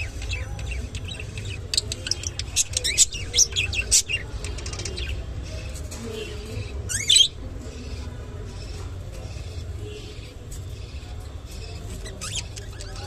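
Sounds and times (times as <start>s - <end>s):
budgerigar chirping: 6.4s - 13.0s.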